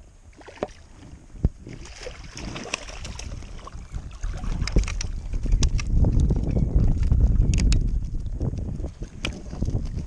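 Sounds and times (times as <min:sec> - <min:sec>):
water splashing and churning: 0:00.0 - 0:06.2, 0:08.2 - 0:10.0
wind buffeting microphone: 0:00.0 - 0:10.0.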